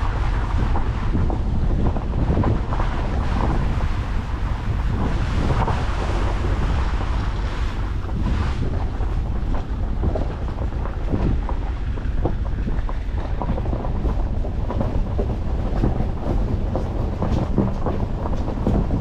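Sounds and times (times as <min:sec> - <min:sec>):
vehicle running gear rumble: 0:00.0 - 0:19.0
wind buffeting microphone: 0:00.0 - 0:19.0
stones knocking and rattling: 0:00.1 - 0:19.0.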